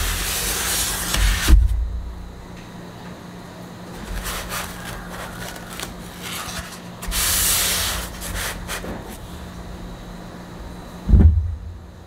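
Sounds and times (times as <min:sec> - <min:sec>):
foam pieces rubbing and scraping: 0:00.0 - 0:01.6, 0:03.9 - 0:09.4.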